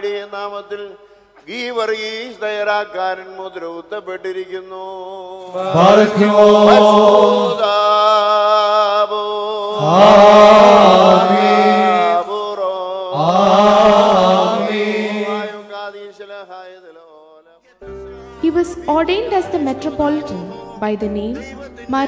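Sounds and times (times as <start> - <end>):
men chanting: 5.4 - 16.6.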